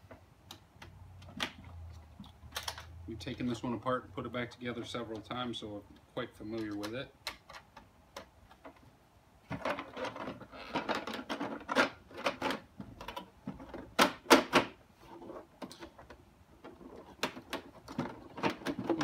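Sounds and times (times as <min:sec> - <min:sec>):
plastic vacuum housing clattering: 0:15.6 - 0:19.0.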